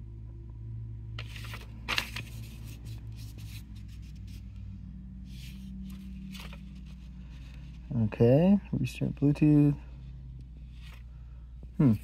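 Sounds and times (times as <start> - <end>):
steady low hum: 0.0 - 12.0
paper pages rustling: 1.2 - 4.5, 5.3 - 7.9, 10.6 - 11.1.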